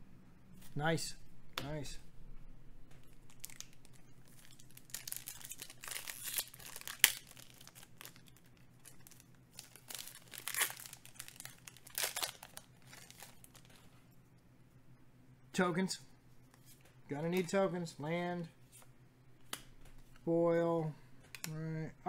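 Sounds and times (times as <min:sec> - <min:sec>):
plastic wrapper crinkling and tearing: 0:03.0 - 0:13.9.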